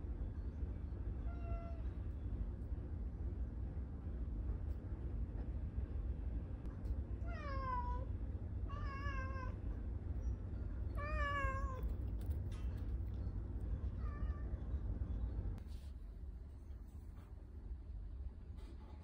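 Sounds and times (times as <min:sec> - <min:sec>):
steady low rumble: 0:00.0 - 0:19.0
cat meowing: 0:08.7 - 0:09.6, 0:11.0 - 0:11.9.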